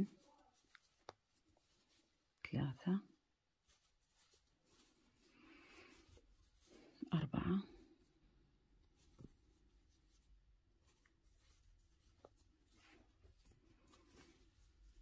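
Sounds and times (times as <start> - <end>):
crochet hook rustling yarn: 0.0 - 15.0.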